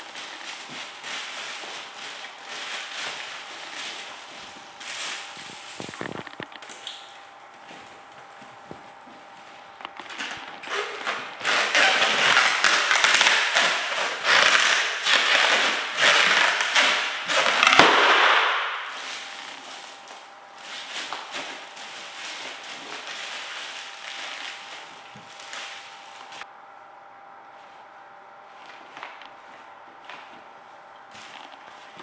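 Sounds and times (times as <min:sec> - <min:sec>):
foil balloon crinkling underfoot: 0:00.0 - 0:26.5, 0:27.5 - 0:32.0
foil balloon bursting: 0:10.1 - 0:20.1.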